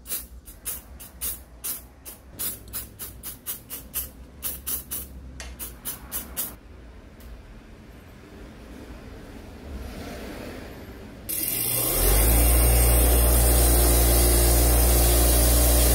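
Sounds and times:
spray bottle squirts: 0.0 - 6.6.

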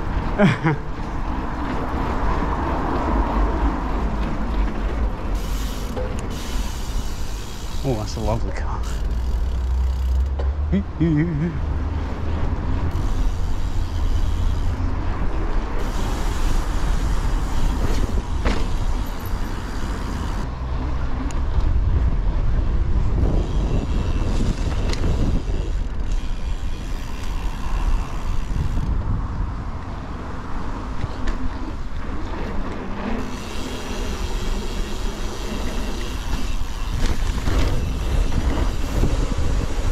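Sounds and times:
bike tyre noise on paving: 0.0 - 39.9
bike knocks and rattles: 4.0 - 6.7, 17.5 - 20.5, 35.4 - 39.9
wind rumble on microphone: 20.1 - 33.2, 34.3 - 39.9.

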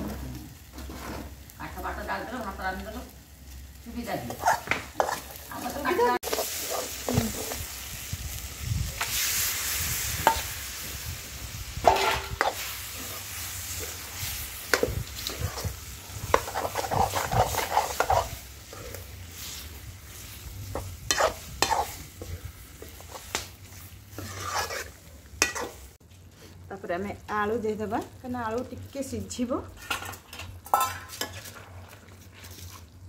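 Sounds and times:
curry sizzling in a pan: 0.0 - 33.0
metal ladle scraping a pan: 4.3 - 5.4, 6.2 - 7.7, 11.7 - 25.9, 29.7 - 32.8.

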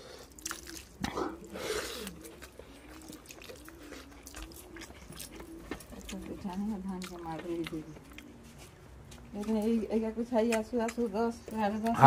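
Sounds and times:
dove cooing: 0.0 - 9.0
chewing: 0.0 - 12.0.

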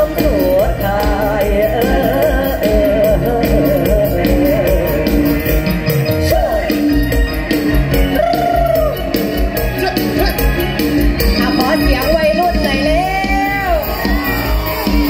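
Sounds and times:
men singing with vibrato: 0.0 - 10.7
amplified backing music: 0.0 - 15.0
steady drum beat: 0.0 - 15.0.

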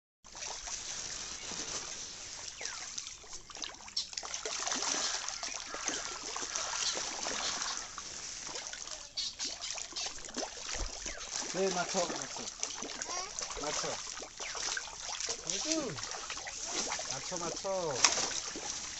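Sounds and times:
fish splashing at water surface: 0.3 - 18.9.

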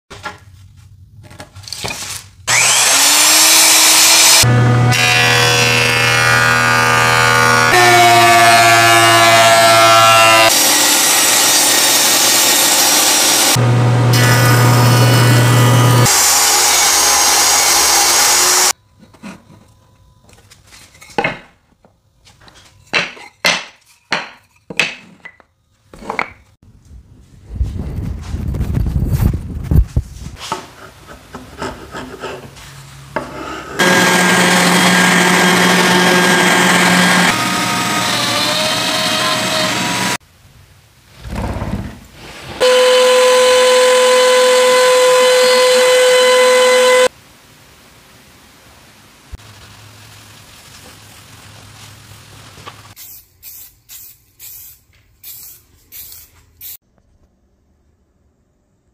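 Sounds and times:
cordless drill running: 2.5 - 4.4
orbital sander running: 2.5 - 18.7, 33.8 - 40.2
chisel scraping wood: 30.4 - 34.2
spray paint can hissing: 52.9 - 56.8.

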